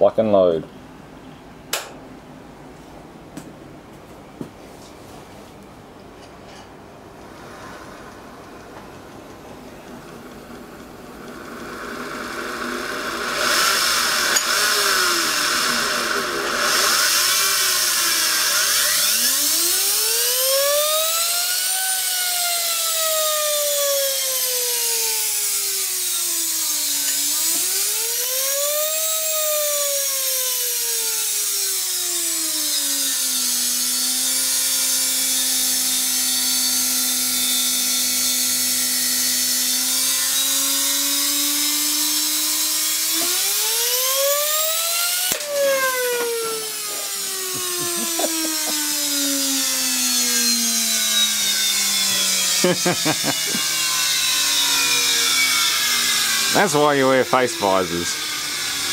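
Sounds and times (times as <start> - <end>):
motor whine: 7.2 - 58.9.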